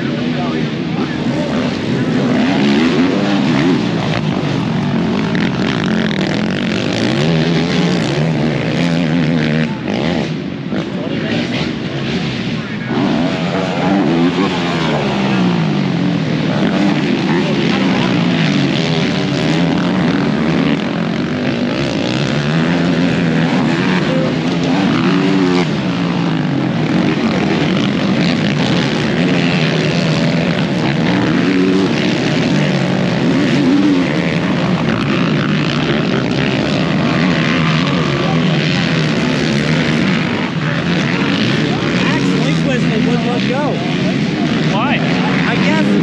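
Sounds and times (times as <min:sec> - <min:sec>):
racing engines revving: 0:00.0 - 0:46.0.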